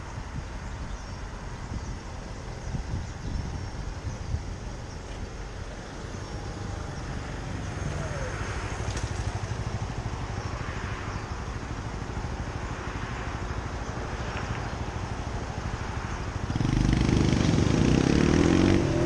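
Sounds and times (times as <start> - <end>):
motorbike passing: 4.0 - 19.0.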